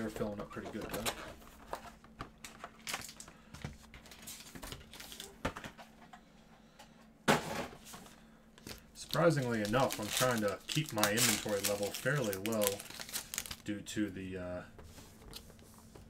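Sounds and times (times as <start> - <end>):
foil packs crinkling: 2.4 - 3.4, 4.0 - 5.4, 8.6 - 13.7.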